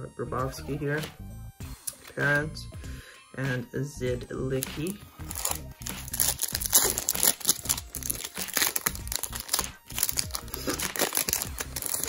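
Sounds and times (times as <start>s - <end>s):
foil wrapper crinkling and tearing: 5.2s - 12.0s.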